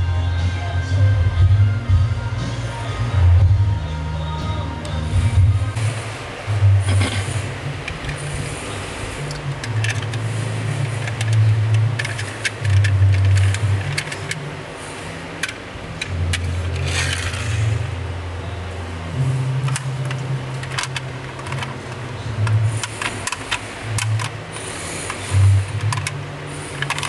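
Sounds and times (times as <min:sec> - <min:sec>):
background music bass line: 0:00.0 - 0:26.9
plastic toy trucks clicking: 0:09.2 - 0:14.5, 0:15.4 - 0:17.8, 0:19.6 - 0:27.0.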